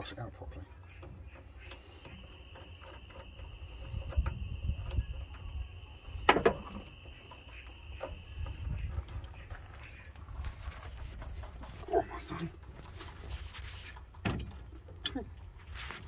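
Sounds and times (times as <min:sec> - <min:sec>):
faint high whine: 0:01.4 - 0:10.0.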